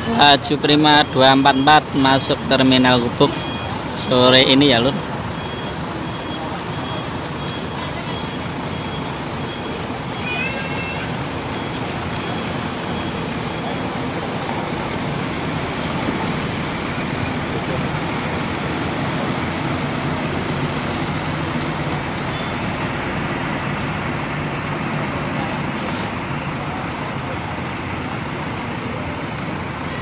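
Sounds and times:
bus diesel engine running: 0.0s - 30.0s
traffic noise: 0.0s - 30.0s
short high tone: 10.1s - 11.2s.

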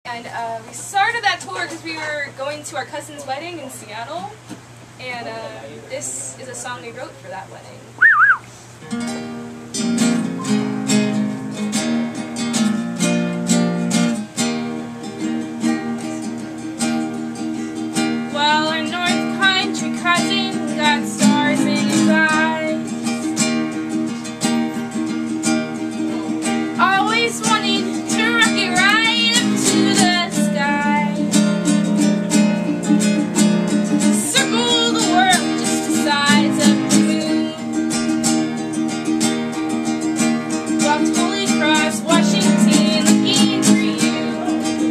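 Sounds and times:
acoustic guitar and ukulele strumming: 0.1s - 5.4s, 8.0s - 44.9s
person singing: 26.0s - 31.3s, 34.0s - 37.8s, 40.8s - 44.9s.

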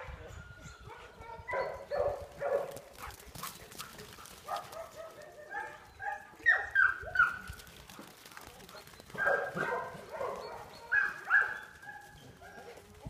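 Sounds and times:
dogs yipping and barking: 0.7s - 3.1s, 4.4s - 7.6s, 9.1s - 12.9s.

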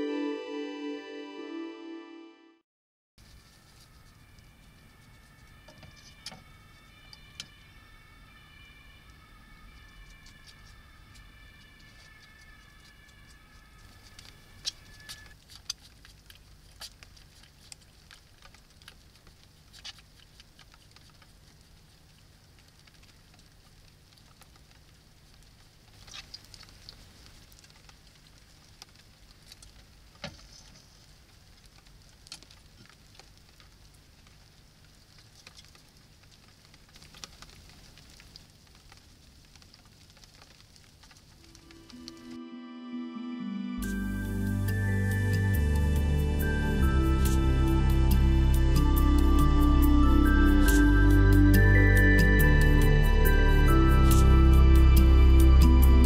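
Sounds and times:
hedgehog chewing and crunching: 9.6s - 42.1s, 43.8s - 56.0s
low steady hum: 41.2s - 56.0s
faint high steady tone: 41.4s - 56.0s.

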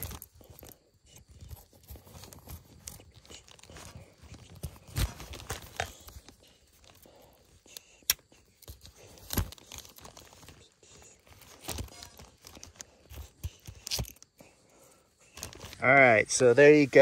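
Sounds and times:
plastic bag crinkling: 0.0s - 0.7s, 1.4s - 7.0s, 8.7s - 14.3s, 15.2s - 15.8s
knife crunching through potatoes: 0.0s - 7.0s, 7.6s - 14.4s.

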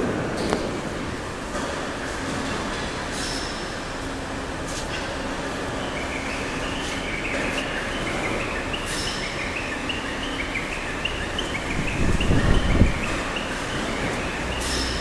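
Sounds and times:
workshop hall background noise: 0.0s - 15.0s.

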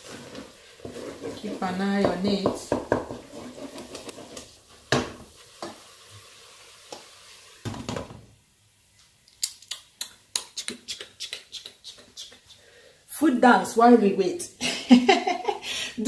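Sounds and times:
spoon scraping thick paste in pot: 0.0s - 4.7s
low sizzle: 0.0s - 9.2s.

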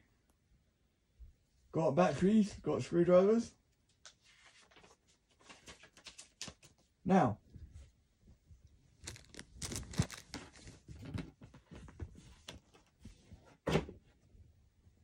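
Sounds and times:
handling rustles and clicks: 9.0s - 13.0s.

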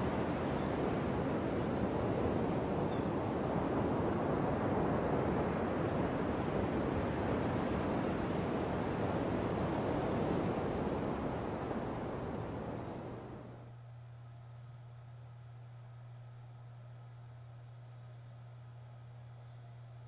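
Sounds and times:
sea surf: 0.0s - 13.4s
wind: 0.0s - 20.0s.

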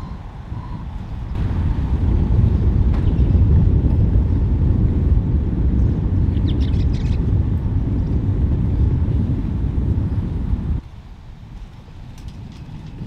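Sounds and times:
loud low rumble: 1.3s - 10.8s.

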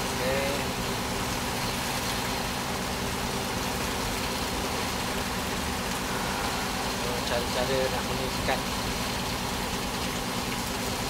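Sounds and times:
boat engine droning: 0.0s - 11.0s.

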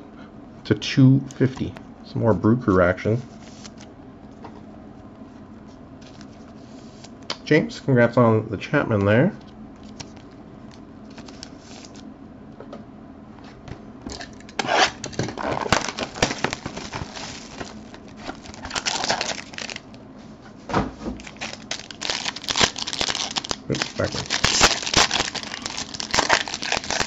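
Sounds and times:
foil pack tearing and crinkling: 14.5s - 20.0s, 21.2s - 27.0s.

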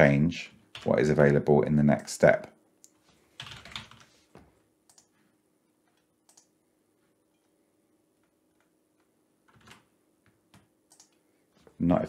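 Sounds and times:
faint computer mouse clicks: 4.9s - 5.1s, 6.3s - 6.5s, 10.9s - 11.2s.

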